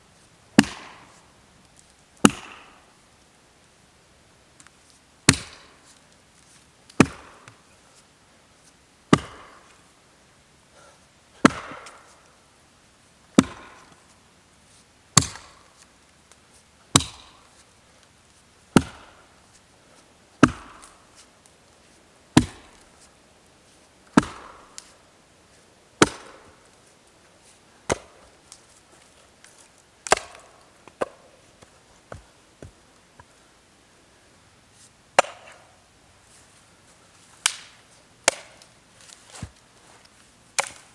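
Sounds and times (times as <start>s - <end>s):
axe chopping branches: 0.6s - 1.0s, 2.2s - 2.8s, 5.3s - 5.8s, 6.9s - 7.6s, 9.1s - 9.7s, 11.4s - 12.1s, 13.4s - 14.0s, 15.2s - 15.6s, 16.9s - 17.4s, 18.7s - 19.2s, 20.4s - 21.0s, 22.4s - 22.8s, 24.1s - 24.9s, 26.0s - 26.6s, 27.8s - 28.3s, 30.0s - 31.2s, 35.2s - 35.6s, 37.4s - 39.6s, 40.6s - 40.9s.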